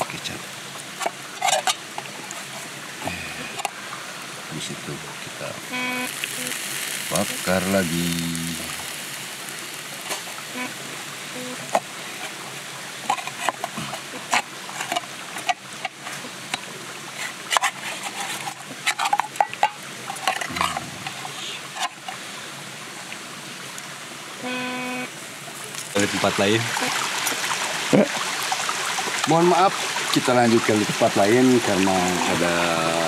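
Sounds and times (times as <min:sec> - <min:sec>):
steady hiss: 0:00.0 - 0:33.0
metal fork scraping a pan: 0:01.0 - 0:01.8, 0:17.2 - 0:22.1.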